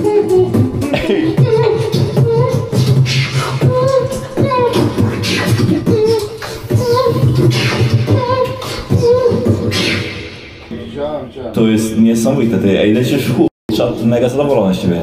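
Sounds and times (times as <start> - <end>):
person beatboxing: 0.0 - 10.9
pitched vocal line: 0.0 - 11.8.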